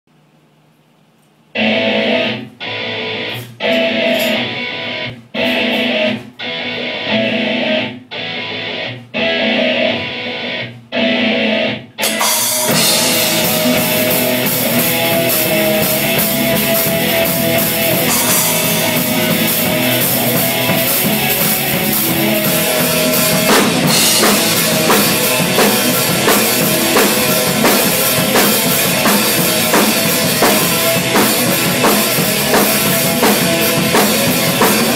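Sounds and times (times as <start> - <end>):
rock music with drums and guitar: 1.6 - 34.9.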